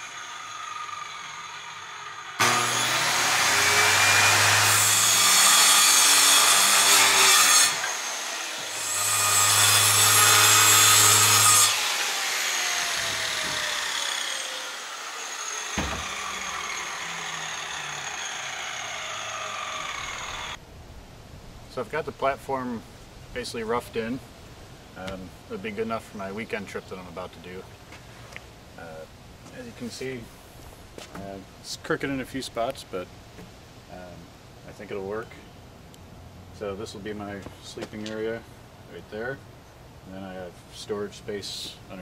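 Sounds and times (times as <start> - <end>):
circular saw cutting plywood: 0.0 - 20.6
sharp knock: 15.8 - 16.2.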